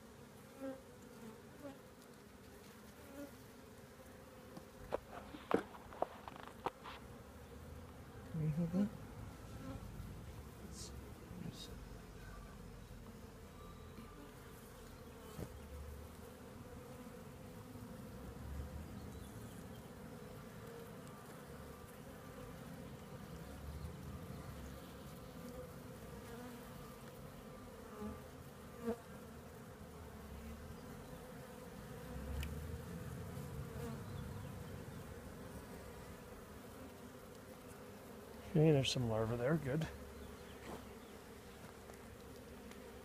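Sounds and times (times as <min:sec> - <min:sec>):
bees buzzing: 0:00.0 - 0:43.0.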